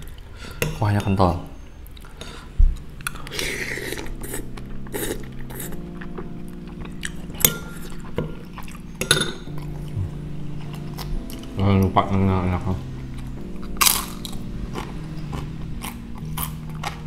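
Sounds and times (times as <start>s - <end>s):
utensils clinking on ceramic bowl: 9.0s - 9.5s.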